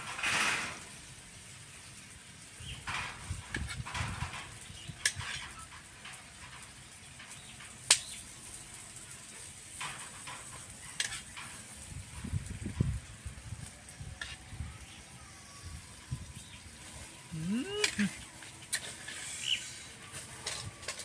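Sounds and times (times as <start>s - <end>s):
faint sizzle on grill: 0.0s - 21.0s
metal spoon scraping shells: 18.7s - 21.0s.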